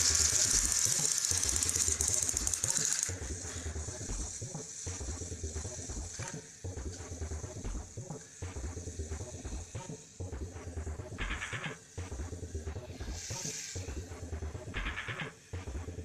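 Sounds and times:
small toy motors buzzing: 0.0s - 10.0s, 12.7s - 15.2s
gears clicking and ratcheting: 0.0s - 10.2s, 12.9s - 14.0s.

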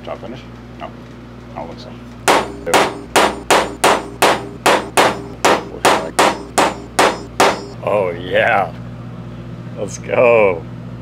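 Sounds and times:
hammer striking metal punch: 2.3s - 7.8s.

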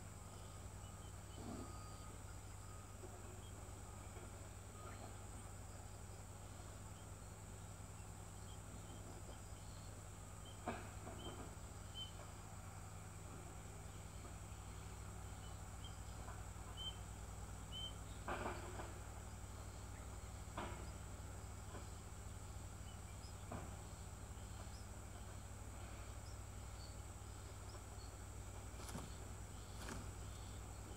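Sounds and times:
low hum: 0.0s - 30.9s
soft rustles: 28.6s - 30.3s.

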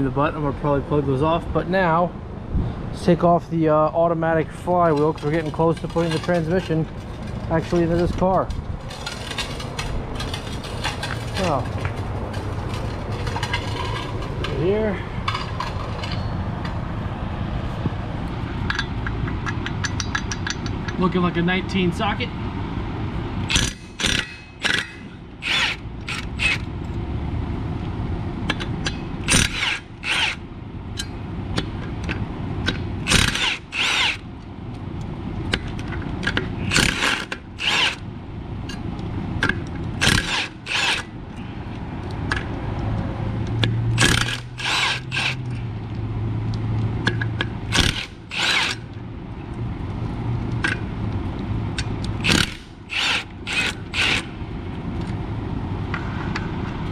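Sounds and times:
impact wrench hammering: 18.6s - 21.0s, 23.5s - 26.7s, 28.5s - 30.4s, 31.0s - 34.2s, 36.3s - 38.0s, 39.4s - 41.1s, 43.6s - 45.5s, 47.0s - 48.9s, 52.2s - 54.3s.

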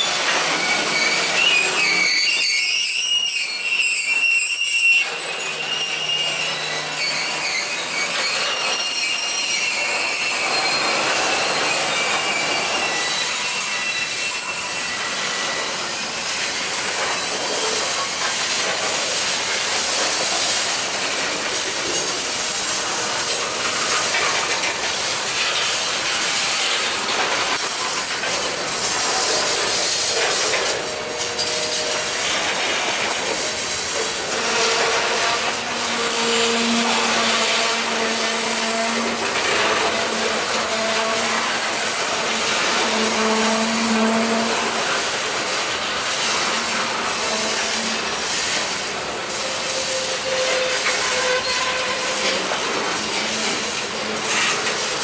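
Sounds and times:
train wheels clattering on rails: 0.0s - 55.0s
thin squealing tones: 0.1s - 17.9s, 29.4s - 45.0s, 49.4s - 52.5s.

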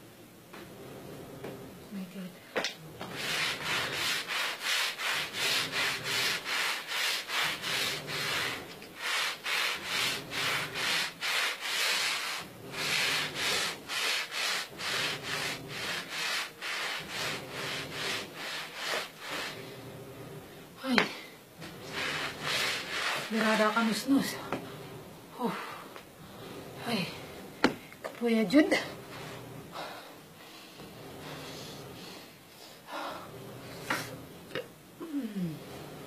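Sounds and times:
hand brush scrubbing a rug: 3.0s - 19.9s, 21.6s - 24.6s.

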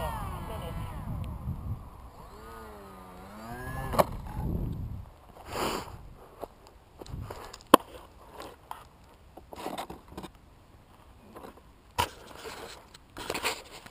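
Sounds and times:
foam model rustling and scraping: 5.3s - 13.9s.

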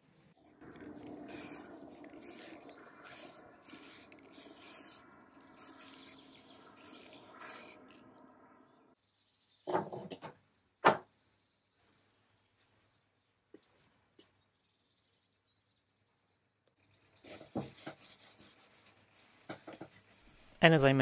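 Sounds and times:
spray paint can hissing: 0.4s - 8.1s, 17.2s - 20.6s.

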